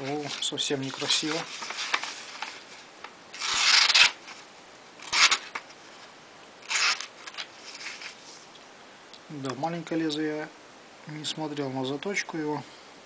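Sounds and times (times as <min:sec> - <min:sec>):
pocketknife cutting paper: 0:03.4 - 0:04.2, 0:05.0 - 0:05.6, 0:06.6 - 0:07.1.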